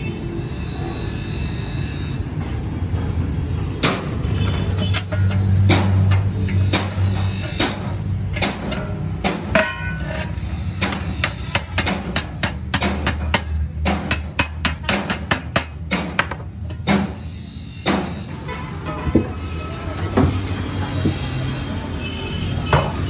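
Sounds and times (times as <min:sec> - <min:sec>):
hammer striking metal: 0:03.8 - 0:04.2, 0:04.8 - 0:19.4.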